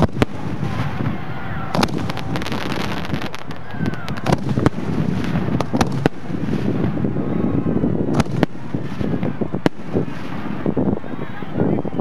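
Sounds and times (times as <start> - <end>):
fireworks mortar booms: 0.0 - 11.0
wind rumble on microphone: 0.0 - 12.0.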